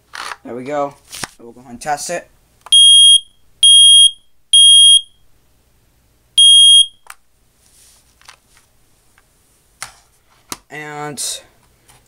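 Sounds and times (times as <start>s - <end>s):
smoke alarm beeping: 2.7s - 5.2s, 6.4s - 7.0s.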